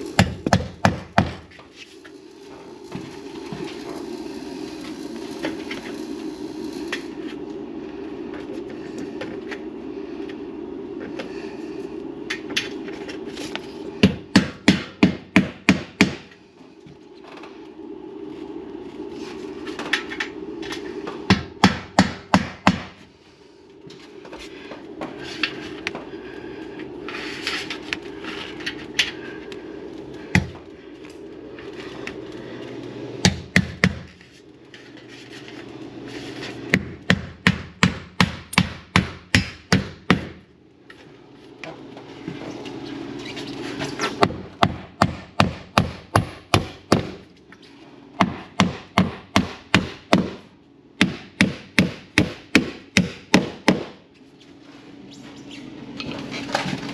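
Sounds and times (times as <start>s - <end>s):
steady low hum: 0.0s - 56.9s
hammer driving nails: 0.2s - 1.4s, 51.0s - 54.0s.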